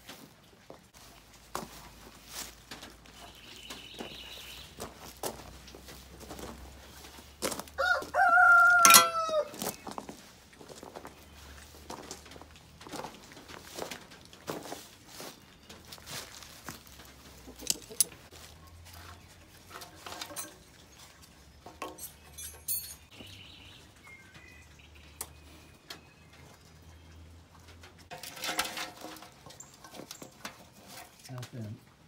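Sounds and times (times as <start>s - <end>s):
rustling: 0.0s - 8.1s, 8.7s - 21.4s.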